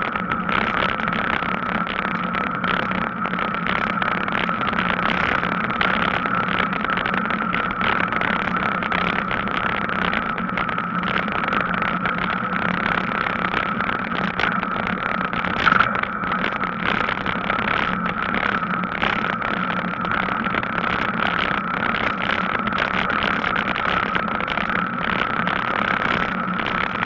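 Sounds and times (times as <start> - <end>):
steady hum: 0.0 - 27.0
wind on microphone: 14.8 - 19.8.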